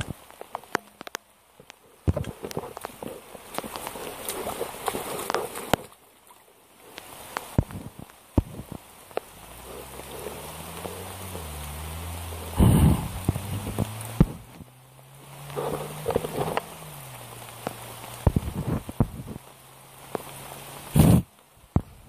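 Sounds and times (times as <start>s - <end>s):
drip and splash clicks: 0.0s - 22.0s
rain falling into a puddle: 0.0s - 22.0s
low steady hum: 7.6s - 20.8s.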